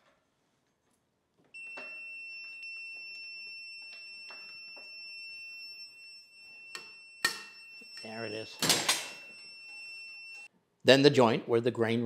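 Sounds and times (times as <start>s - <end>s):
high-pitched electronic beep: 1.6s - 10.5s.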